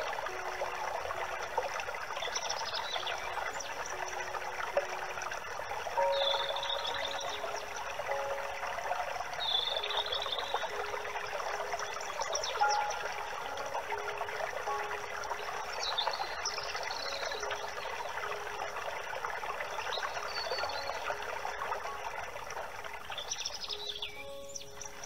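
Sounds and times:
trickle of running water: 0:00.0 - 0:25.0
bird chirps: 0:06.0 - 0:08.5, 0:09.4 - 0:10.9, 0:11.8 - 0:13.8, 0:15.5 - 0:17.9, 0:23.1 - 0:25.0.

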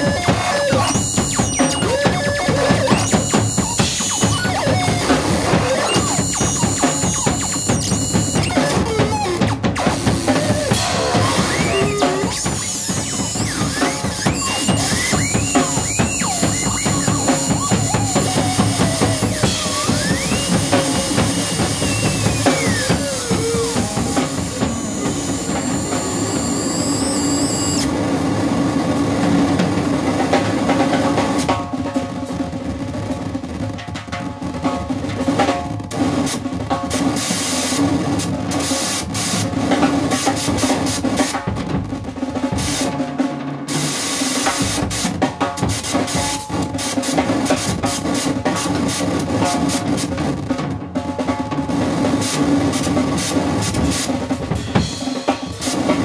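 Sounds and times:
drum kit played fast: 0:00.0 - 0:27.9, 0:32.3 - 0:56.0
electronic noise: 0:00.0 - 0:27.9
sliding whistling tones: 0:00.5 - 0:27.9.

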